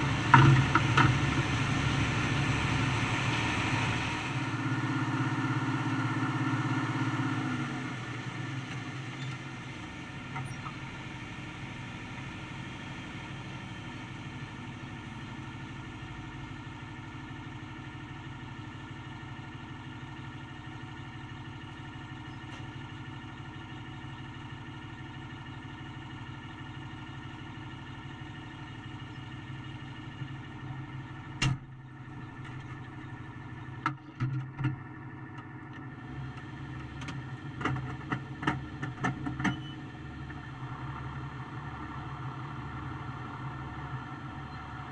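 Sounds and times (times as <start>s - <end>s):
tractor engine and machinery running: 0.0s - 44.9s.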